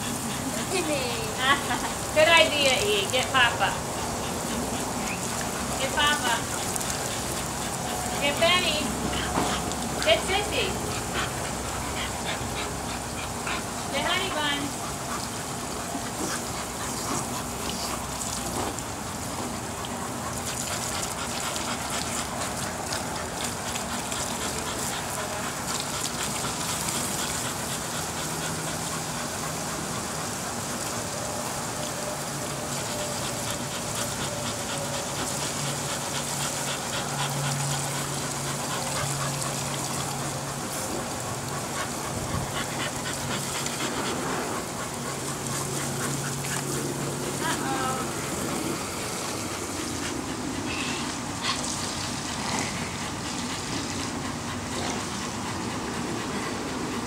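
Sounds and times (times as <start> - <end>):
dog: 0.0 - 57.0
water hissing from hose sprayer: 0.0 - 57.0.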